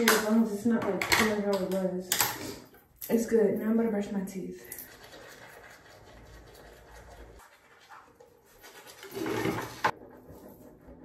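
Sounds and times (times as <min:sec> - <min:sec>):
toothbrush scrubbing teeth: 0:04.6 - 0:11.0.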